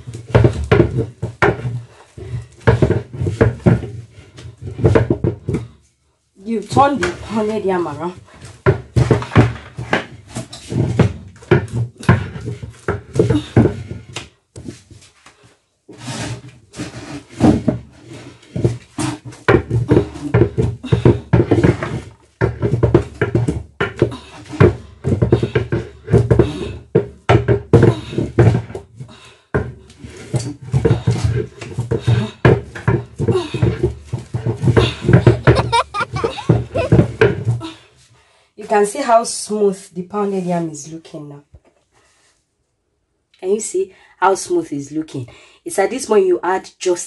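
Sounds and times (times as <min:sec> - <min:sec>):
pestle thudding in wooden mortar: 0:00.0 - 0:05.7, 0:18.5 - 0:28.8, 0:29.5 - 0:37.6.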